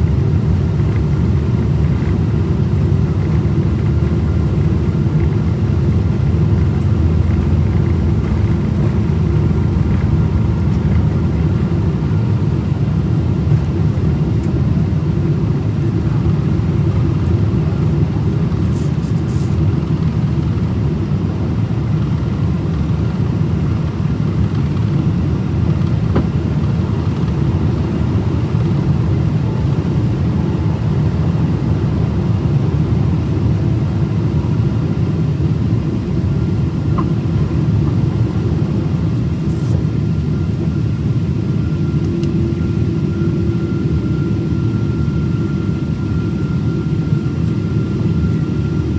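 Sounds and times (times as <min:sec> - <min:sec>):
jet engine cabin rumble: 0:00.0 - 0:48.9.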